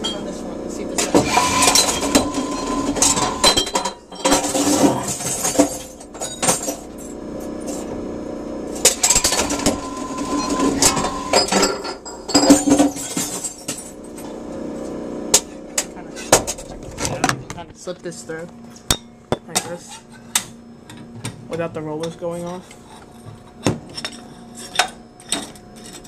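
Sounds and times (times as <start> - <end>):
motor hum: 0.0 - 22.0
glass bottles breaking: 1.2 - 7.0, 8.9 - 14.0.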